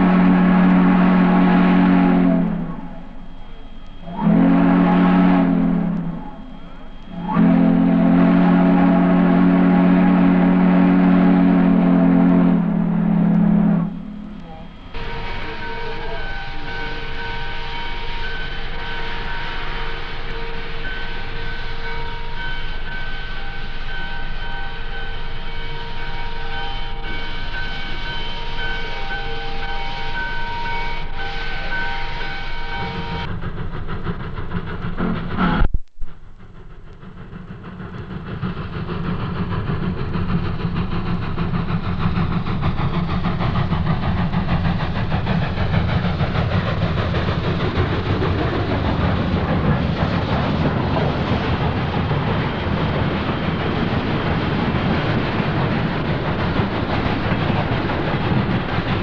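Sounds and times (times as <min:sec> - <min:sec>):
steam whistle chord: 0:00.0 - 0:33.3
train rumbling past: 0:00.0 - 0:59.0.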